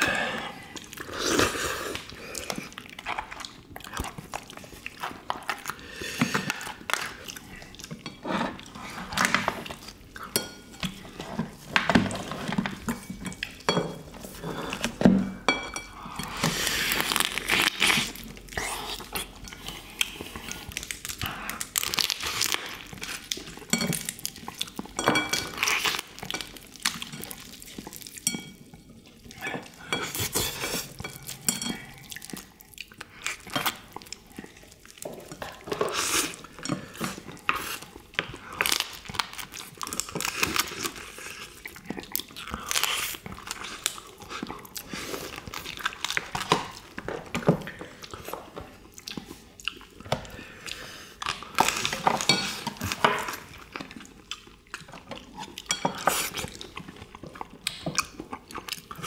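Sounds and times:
chewing: 0.0s - 59.0s
spoons clinking on ceramic bowls: 25.0s - 28.9s, 29.9s - 32.0s.

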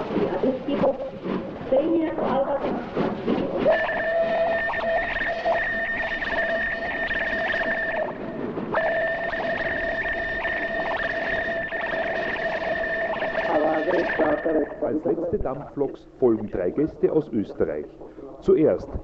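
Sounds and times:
steam locomotive whistle: 3.6s - 14.5s.

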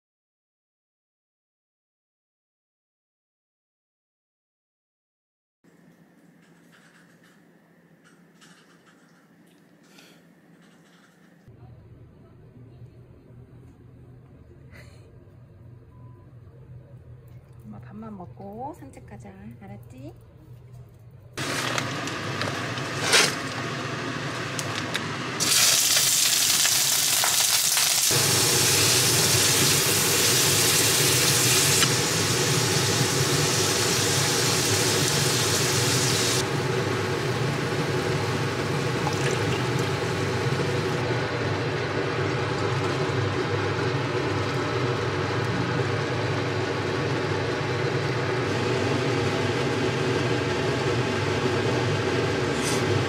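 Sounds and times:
shrimp sizzling in oil: 21.4s - 41.0s.

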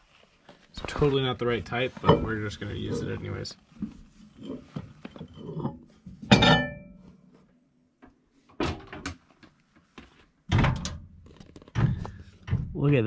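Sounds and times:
glass jar set down with clunk: 6.2s - 7.0s.

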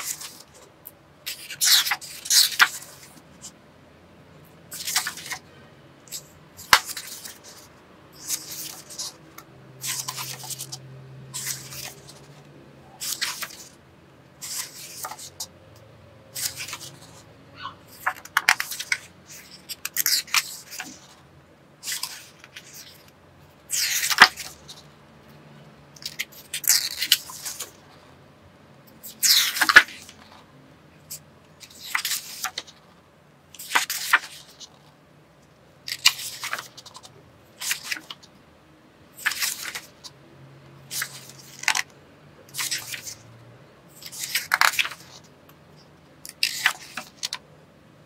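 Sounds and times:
paper pages turning: 0.0s - 0.7s, 1.3s - 3.6s, 4.7s - 5.4s, 6.1s - 13.8s, 14.4s - 15.5s, 16.3s - 17.3s, 17.9s - 21.2s, 21.8s - 23.1s, 23.7s - 24.9s, 26.0s - 28.1s, 29.0s - 30.4s, 31.1s - 32.8s, 33.6s - 34.9s, 35.9s - 38.3s, 39.2s - 40.1s, 40.9s - 41.9s, 42.5s - 43.2s, 43.9s - 45.3s, 46.3s - 47.4s.

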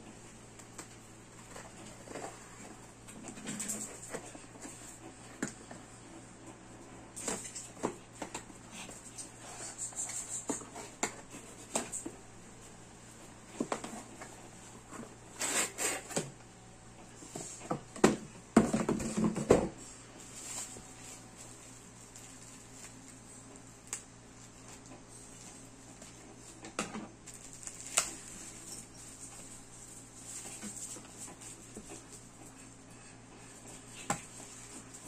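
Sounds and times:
plastic crinkling: 27.2s - 31.1s.

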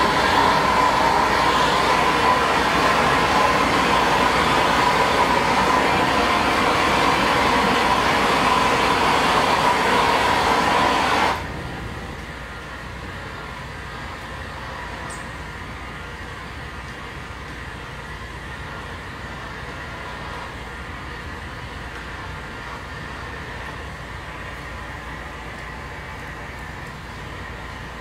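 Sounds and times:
heat gun blowing: 0.0s - 11.6s
faint motor whine: 0.0s - 28.0s.

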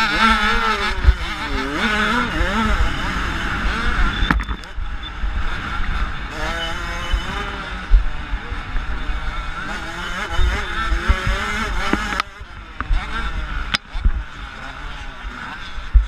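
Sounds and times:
motocross bike engine revving: 0.0s - 16.0s
wind rumble on microphone: 10.3s - 16.0s.

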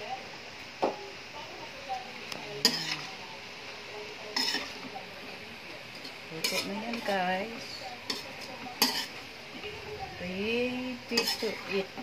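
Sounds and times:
faint sizzle: 0.0s - 12.0s
metal spoon scraping a wok: 2.6s - 3.2s, 4.3s - 4.8s, 6.4s - 12.0s.

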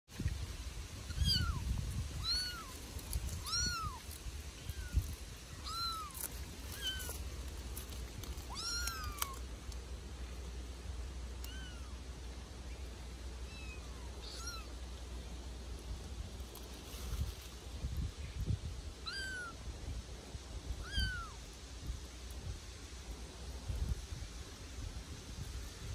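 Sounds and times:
kittens mewing: 2.2s - 4.0s, 4.6s - 7.2s, 8.4s - 9.4s, 11.4s - 12.0s, 13.5s - 14.8s, 19.0s - 19.6s, 20.8s - 21.4s.

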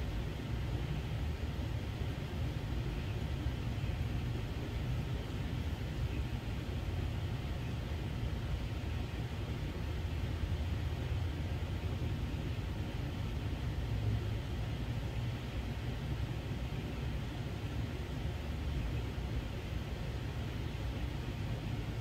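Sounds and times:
low background rumble: 0.0s - 22.0s.

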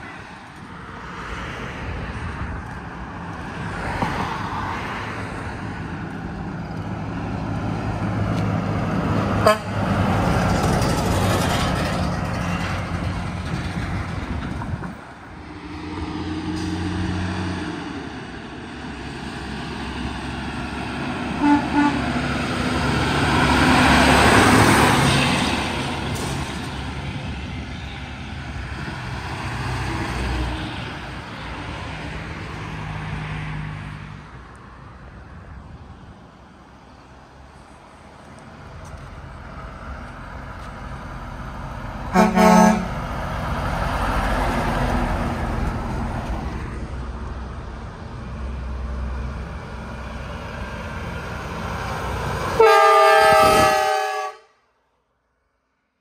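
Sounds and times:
truck engines droning: 0.0s - 54.4s
passing vehicles rushing: 0.0s - 54.5s
horn toots: 9.4s - 9.8s, 21.4s - 22.2s, 42.1s - 43.0s, 52.6s - 54.5s.

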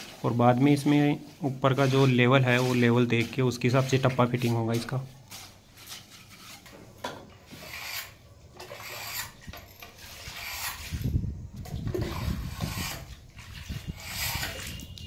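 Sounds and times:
mortar scraping against stone: 7.5s - 11.2s, 11.9s - 14.9s.

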